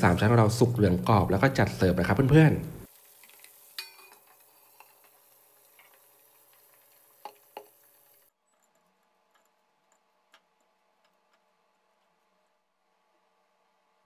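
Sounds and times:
food deep-frying in oil: 0:00.0 - 0:08.4.

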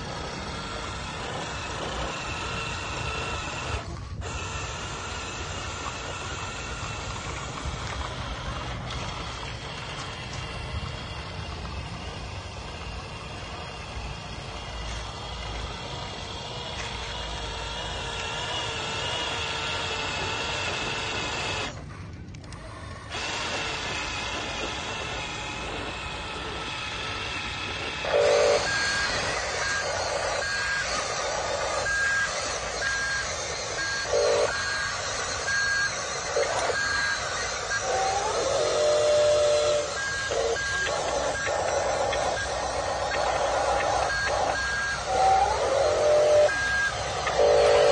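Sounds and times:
electric motors whining: 0:00.0 - 0:47.9
simulated engine noise: 0:00.0 - 0:47.9
short reversing beeps: 0:28.0 - 0:47.9.

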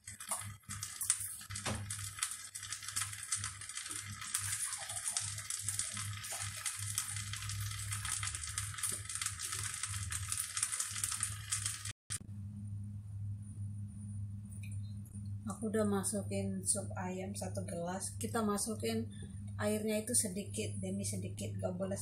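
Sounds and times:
rice sizzling in a pot: 0:00.0 - 0:12.0.

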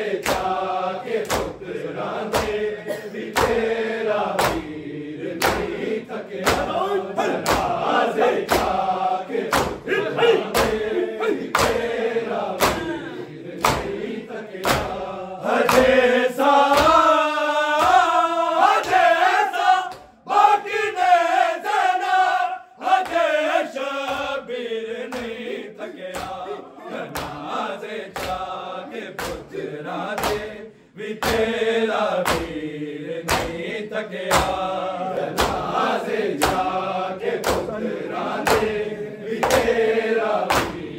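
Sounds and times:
men chanting in unison: 0:00.0 - 0:40.9
hands beating on chests: 0:02.3 - 0:02.6, 0:03.3 - 0:03.7, 0:04.4 - 0:04.7, 0:05.4 - 0:05.8, 0:06.4 - 0:14.0, 0:14.6 - 0:15.0, 0:15.6 - 0:16.0, 0:28.1 - 0:28.5, 0:33.3 - 0:33.6, 0:34.3 - 0:34.6, 0:35.3 - 0:35.7, 0:37.4 - 0:37.8, 0:39.4 - 0:39.8, 0:40.5 - 0:40.8.

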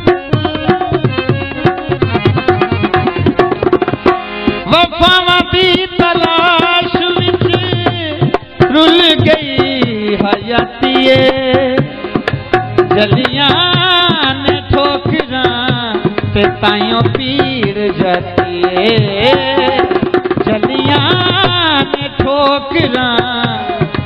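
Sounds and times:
tabla drum strokes: 0:00.0 - 0:24.0.

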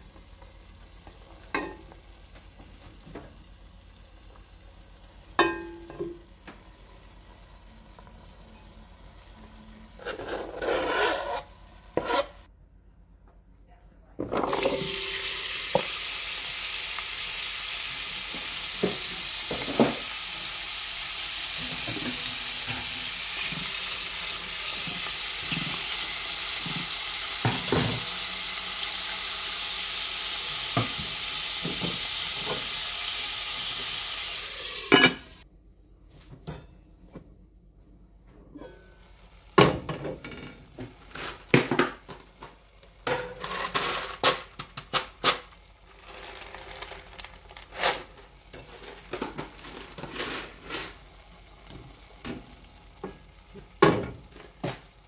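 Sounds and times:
vegetables sizzling in oil: 0:00.0 - 0:10.1, 0:14.5 - 0:35.4, 0:45.6 - 0:55.0.

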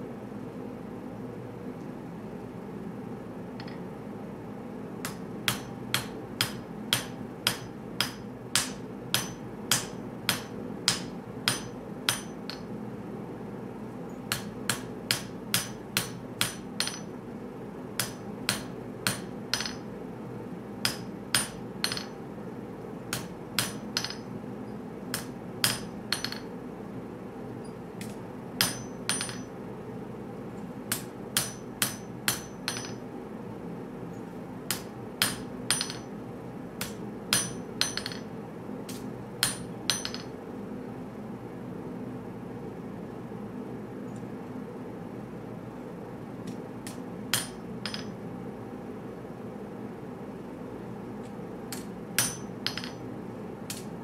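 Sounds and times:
steady low hum: 0:00.0 - 0:54.0
hammer ringing on anvil: 0:06.4 - 0:12.6, 0:15.1 - 0:17.1, 0:18.0 - 0:19.9, 0:20.9 - 0:22.2, 0:23.6 - 0:24.3, 0:28.6 - 0:29.5, 0:31.4 - 0:33.0, 0:35.2 - 0:36.1, 0:37.3 - 0:38.3, 0:39.4 - 0:40.3, 0:47.4 - 0:48.1, 0:52.2 - 0:53.0.

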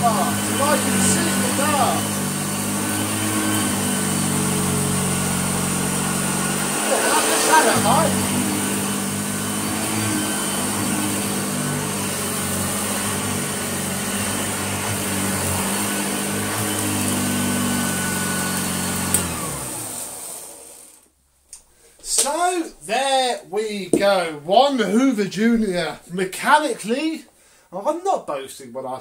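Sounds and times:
vacuum cleaner running: 0:00.0 - 0:21.1.

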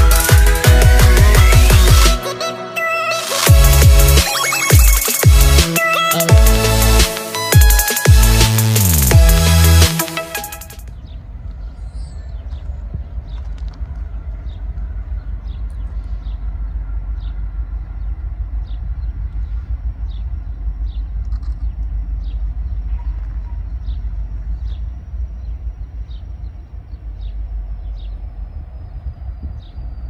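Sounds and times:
low outdoor rumble: 0:10.8 - 0:30.0.

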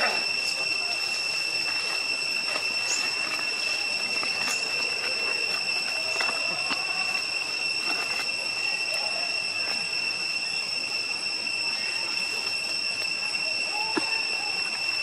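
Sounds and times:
rustles: 0:00.0 - 0:09.9
high-pitched two-tone whine: 0:00.0 - 0:15.0.

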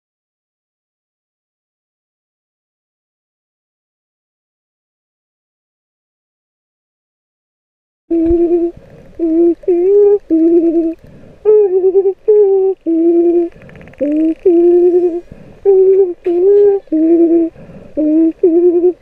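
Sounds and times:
woman singing wordless tune: 0:08.1 - 0:19.0.

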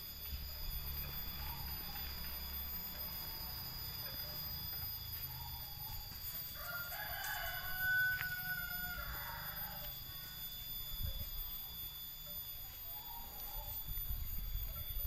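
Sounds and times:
steady high-pitched tones: 0:00.0 - 0:15.0
rooster crowing: 0:05.0 - 0:10.8.

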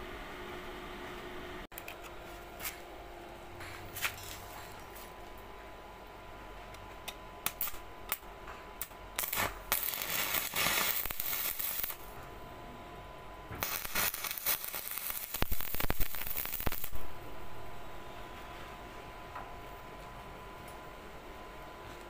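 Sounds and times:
welding arc crackling: 0:07.4 - 0:12.2, 0:13.6 - 0:17.2.

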